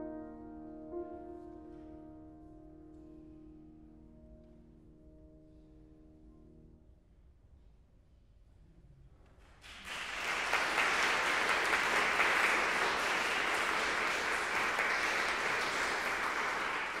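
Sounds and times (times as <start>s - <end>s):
audience applause: 9.6s - 17.0s.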